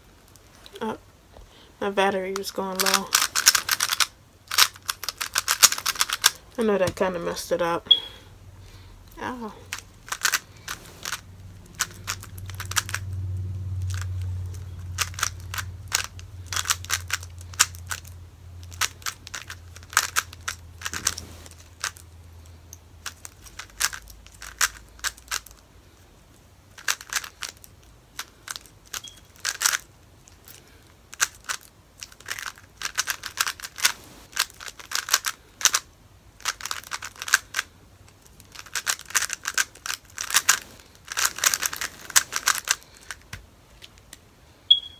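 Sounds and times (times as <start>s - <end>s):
speed cube clicking: 2.4s - 6.5s, 9.7s - 13.1s, 13.8s - 22.0s, 23.0s - 25.6s, 26.7s - 29.9s, 30.5s - 43.4s
low hum: 7.6s - 19.0s.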